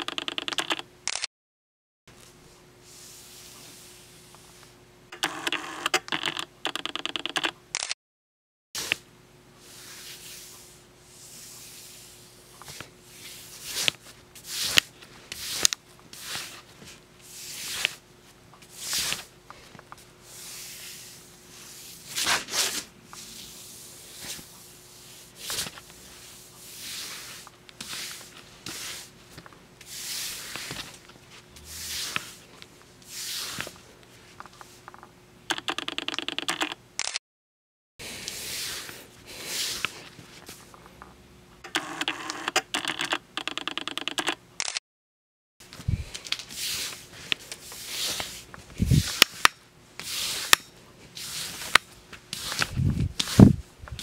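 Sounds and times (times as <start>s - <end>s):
toy scratching on wooden floor: 31.6s - 32.4s.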